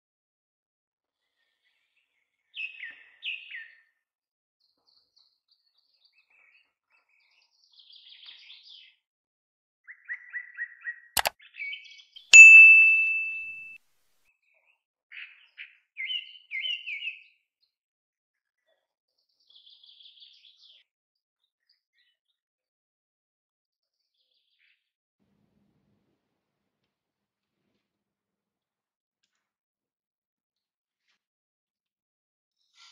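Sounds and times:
bell ding: 12.4s - 13.8s.

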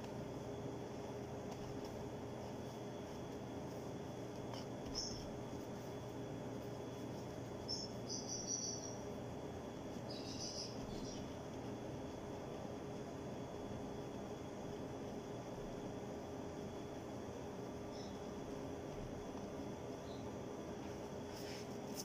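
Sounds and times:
hands kneading dough: 0.0s - 7.7s
low room hum: 0.0s - 22.0s.

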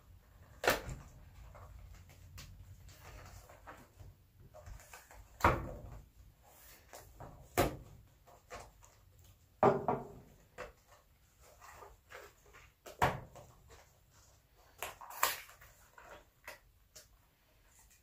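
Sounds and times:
thick plastic crinkling: 0.2s - 7.2s, 10.3s - 18.0s
sharp plastic crackles: 0.3s - 6.1s, 10.4s - 18.0s.

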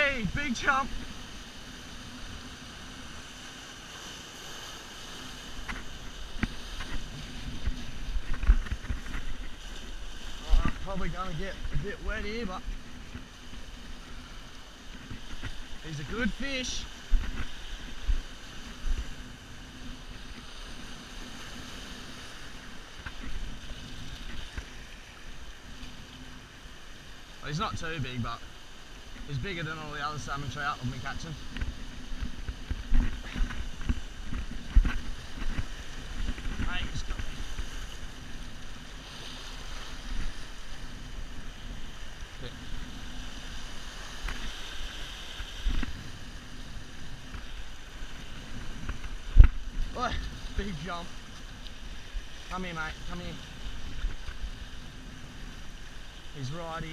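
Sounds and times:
surf washing over rocks: 0.0s - 56.9s
wind rumbling on microphone: 0.0s - 56.9s
wind buffeting the microphone: 30.8s - 56.9s.

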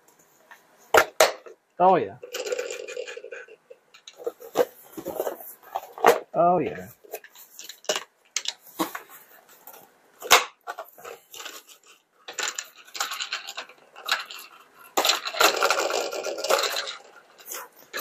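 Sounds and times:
toy wheels rattling whir: 2.2s - 6.1s, 10.7s - 18.0s
plastic toy clicks and knocks: 7.1s - 8.9s, 12.3s - 18.0s.

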